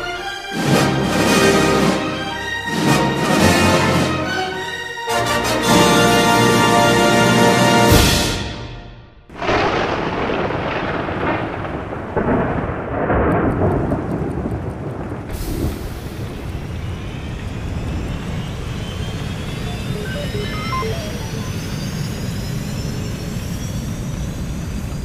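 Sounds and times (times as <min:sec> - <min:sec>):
thunder rumbling: 0:09.3 - 0:25.0
rising whine: 0:15.6 - 0:25.0.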